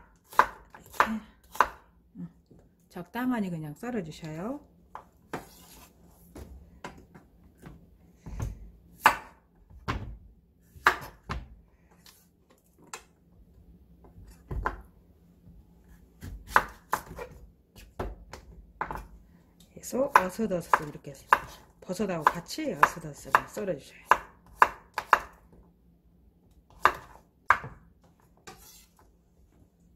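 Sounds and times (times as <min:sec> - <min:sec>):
knife chopping on wooden board: 0:00.0 - 0:01.9, 0:07.6 - 0:10.1, 0:10.7 - 0:11.5, 0:16.2 - 0:19.1, 0:20.1 - 0:25.4, 0:26.7 - 0:27.8.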